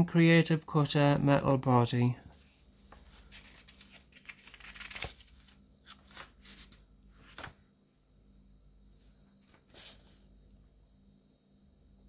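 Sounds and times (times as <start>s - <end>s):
paper pages rustling: 2.3s - 7.6s, 9.3s - 10.2s
page flicks: 5.9s - 7.6s.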